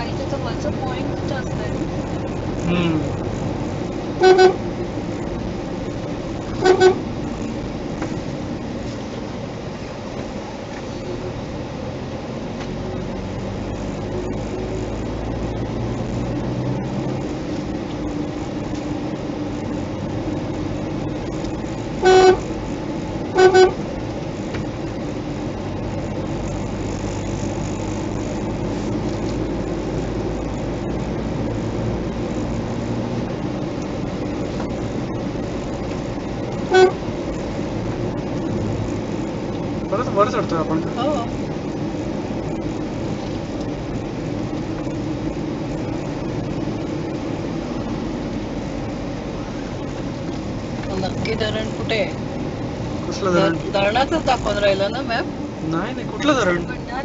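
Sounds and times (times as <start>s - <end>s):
car engine and tyres on road: 0.0s - 57.0s
car horn beeps: 4.2s - 4.6s, 6.5s - 7.1s, 22.0s - 22.6s, 23.3s - 23.8s, 36.6s - 37.1s.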